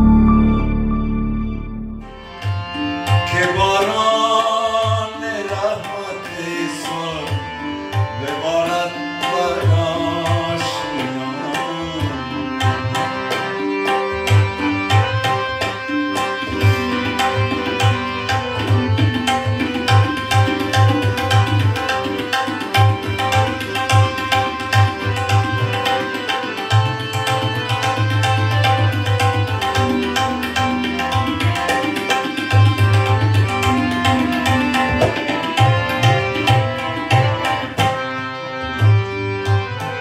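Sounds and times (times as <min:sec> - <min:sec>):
harmonium held notes: 0:00.0 - 0:40.0
tabla strokes: 0:12.6 - 0:38.0.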